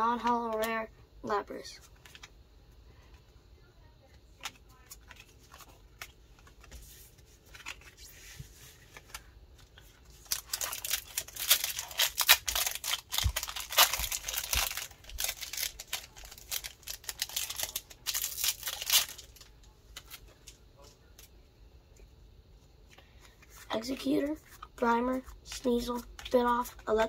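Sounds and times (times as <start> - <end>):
foil wrapper crinkling and tearing: 10.0 - 20.2.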